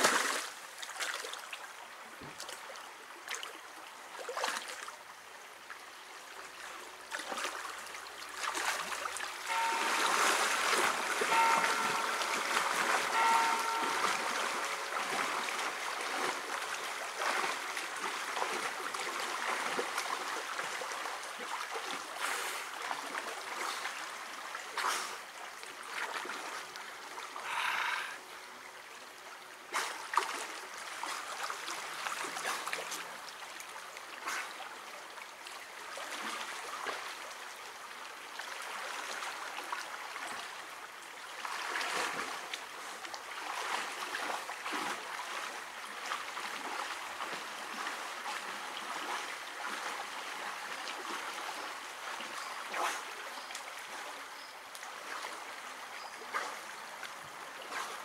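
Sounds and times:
water splashes: 0:00.0 - 0:28.3, 0:29.6 - 0:58.0
river rushing over rapids: 0:08.4 - 0:20.9.

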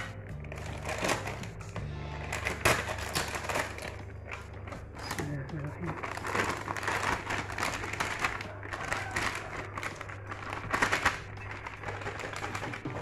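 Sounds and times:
low hum: 0:00.0 - 0:07.6
plastic bag crinkling: 0:00.0 - 0:13.0.

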